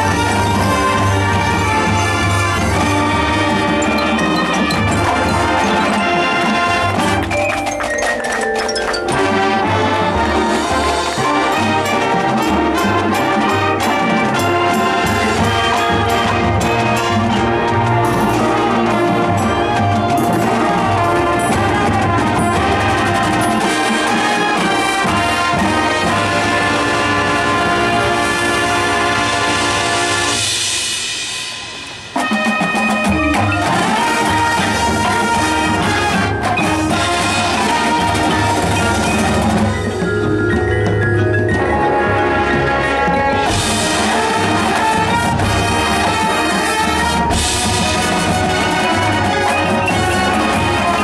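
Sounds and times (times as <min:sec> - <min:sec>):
brass falling slide: 0:00.0 - 0:39.9
marching band playing: 0:00.0 - 0:51.0.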